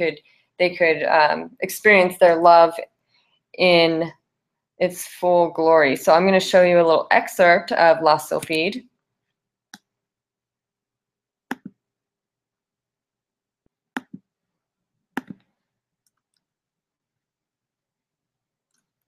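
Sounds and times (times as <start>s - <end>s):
computer mouse clicking: 11.5s - 11.8s, 15.2s - 16.5s.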